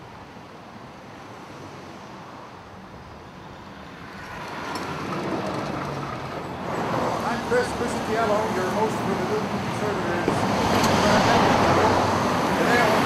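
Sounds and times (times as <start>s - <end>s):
road traffic: 0.0s - 13.0s
low engine drone: 9.1s - 13.0s.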